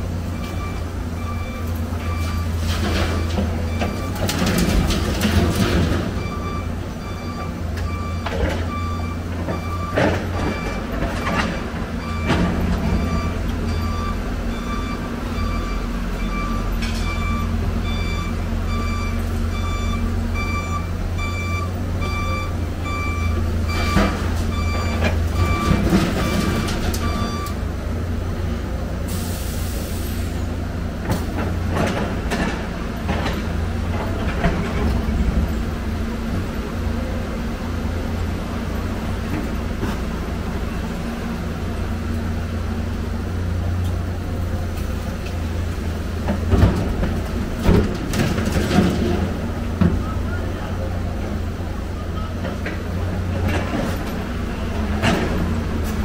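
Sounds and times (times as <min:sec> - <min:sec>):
diesel machinery rumbling: 0:00.0 - 0:56.0
reversing alarm beeping: 0:00.3 - 0:04.2, 0:06.2 - 0:27.6.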